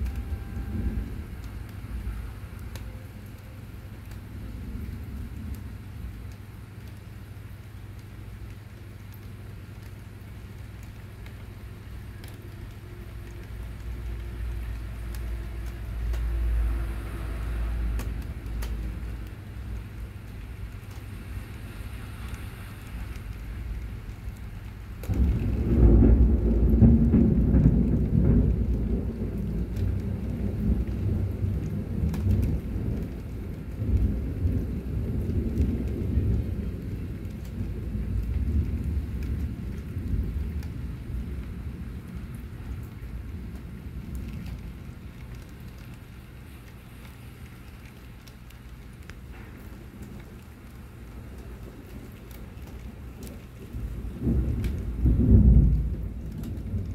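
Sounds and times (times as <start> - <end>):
rain on pavement: 0.0 - 56.9
low rumble: 12.0 - 47.2.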